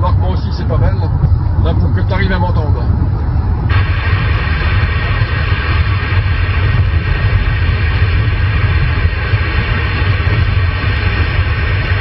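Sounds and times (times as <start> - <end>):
car engine and road rumble: 0.0 - 12.0
radio static hiss: 3.7 - 12.0.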